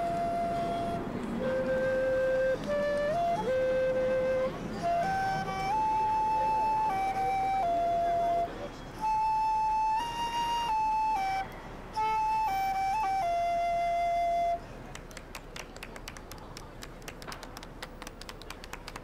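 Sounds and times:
slow flute-like melody: 0:00.0 - 0:14.7.

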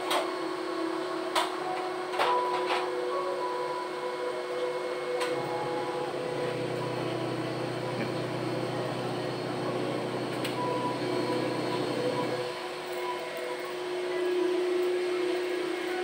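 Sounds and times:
machine hum with tones: 0:00.0 - 0:16.0
deep motor drone: 0:05.5 - 0:12.4.

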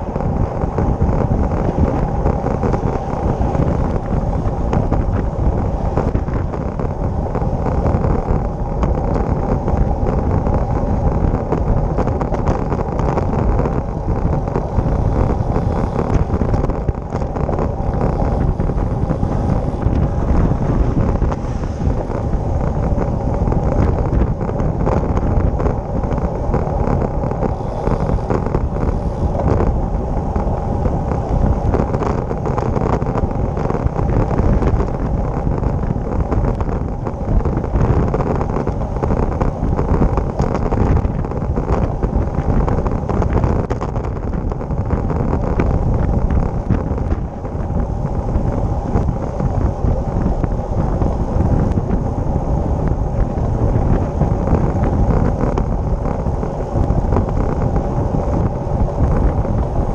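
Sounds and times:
tyre noise on asphalt: 0:00.0 - 0:59.9
wind rushing over microphone: 0:00.0 - 0:59.9.

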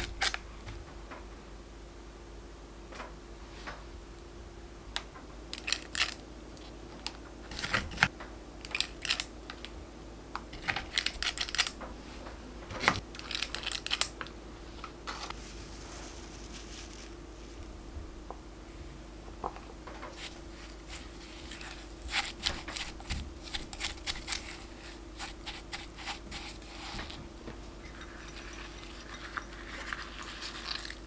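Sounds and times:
spoon scraping tub: 0:20.1 - 0:31.0.

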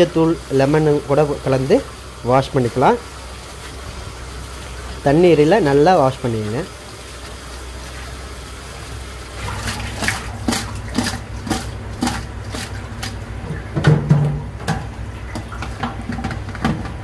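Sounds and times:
tap water splashing in colander: 0:04.5 - 0:17.0.

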